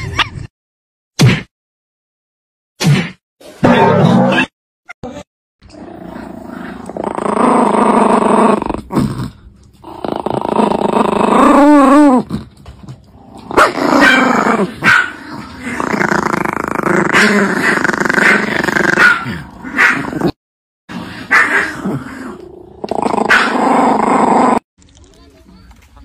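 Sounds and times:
small dog growling: 5.7s - 12.6s, 13.2s - 24.6s.

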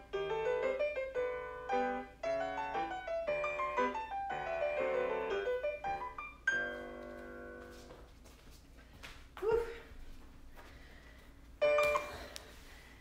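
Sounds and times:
solo piano music: 0.0s - 7.7s.

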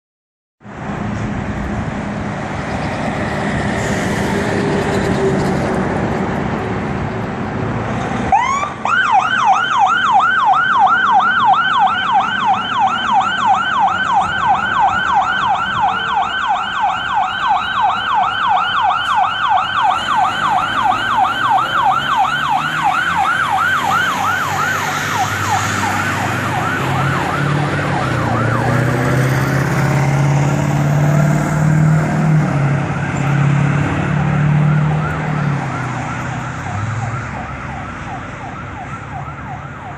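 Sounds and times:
fire engine diesel engine: 0.6s - 39.9s
siren wailing and yelping: 8.3s - 30.2s, 32.6s - 39.9s.

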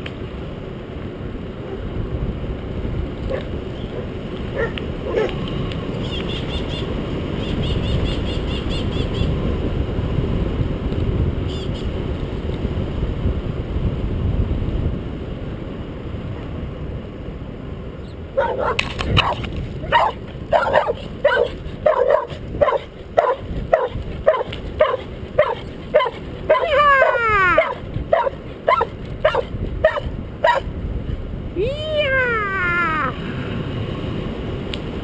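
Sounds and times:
wind and road noise: 0.0s - 35.0s
dog barking: 3.3s - 5.4s, 18.4s - 30.7s.

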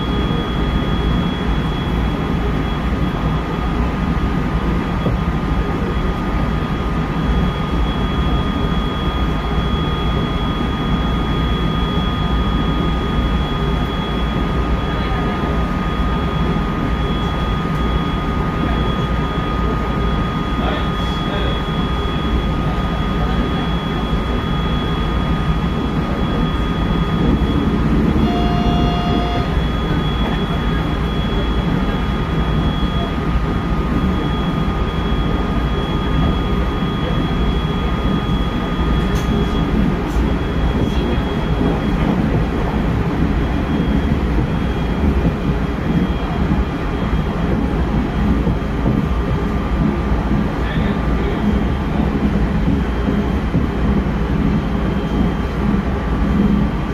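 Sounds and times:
train wheels rumbling on rail: 0.0s - 56.9s
thin high whine: 4.8s - 56.9s
short tone: 7.3s - 42.4s.

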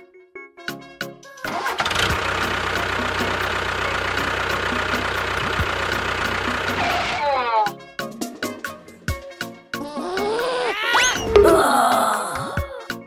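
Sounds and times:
tractor engine starting and rumbling: 1.5s - 7.2s.

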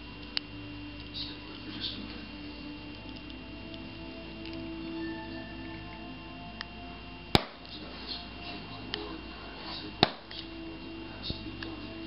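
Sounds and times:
balloons popping: 7.3s - 7.7s, 10.0s - 10.4s.

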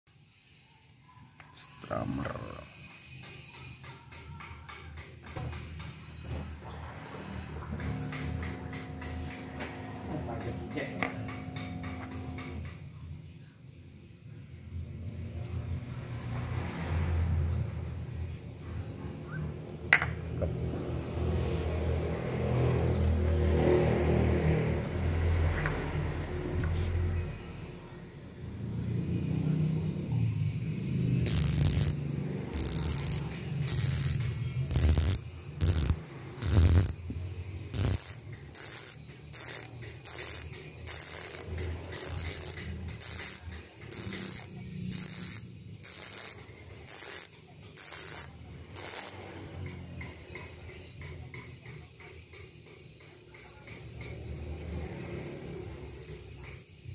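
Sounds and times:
bicycle hub ratchet buzzing: 1.6s - 4.4s, 19.9s - 56.9s
hands handling hub rumble: 31.2s - 50.3s.

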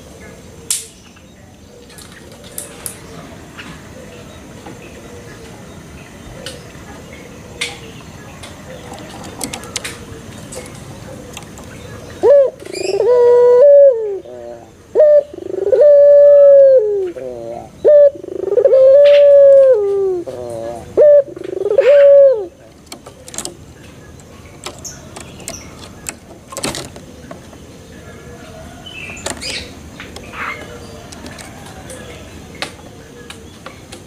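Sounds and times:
dove cooing: 8.5s - 33.7s.

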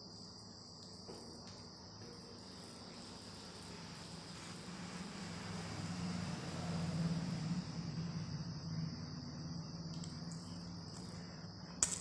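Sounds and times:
high-pitched whine: 0.0s - 12.0s
low hum: 3.6s - 12.0s.

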